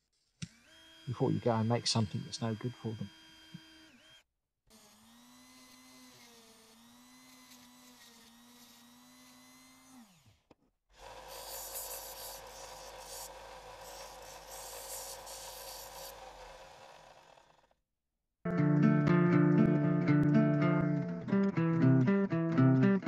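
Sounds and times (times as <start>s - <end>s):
belt sander motor hum: 0.4s - 10.4s, 11.0s - 17.8s
cordless drill motor running: 0.4s - 17.8s
metal grinding on sander belt: 1.0s - 3.7s, 11.0s - 17.6s.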